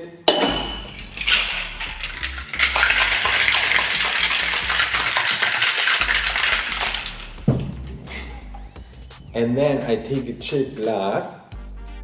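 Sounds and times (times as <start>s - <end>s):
ice rattling in cocktail shaker: 0.3s - 8.6s
shaker closing clinks: 0.3s - 8.7s.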